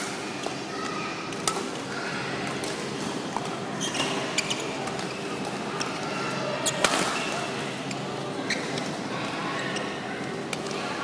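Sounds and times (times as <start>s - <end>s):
steady hall hum: 0.0s - 11.0s
shoes squeaking on court floor: 3.8s - 5.2s, 6.6s - 9.0s.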